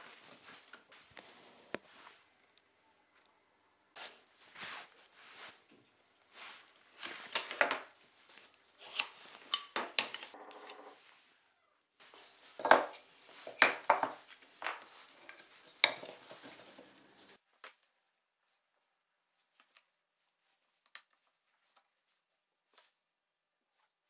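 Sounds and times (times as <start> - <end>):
plywood knocking and scraping: 12.6 - 17.3.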